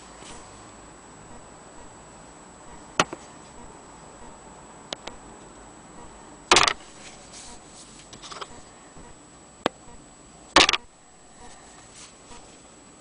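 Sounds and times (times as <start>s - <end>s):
faint high whine: 0.0s - 12.6s
sharp click: 4.9s - 5.2s, 6.5s - 6.8s, 10.6s - 10.8s.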